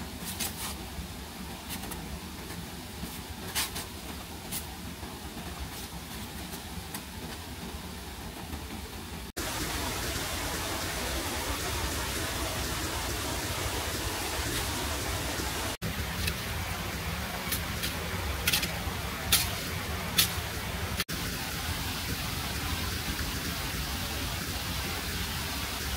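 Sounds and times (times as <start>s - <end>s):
heavy rain falling: 0.9s - 25.9s.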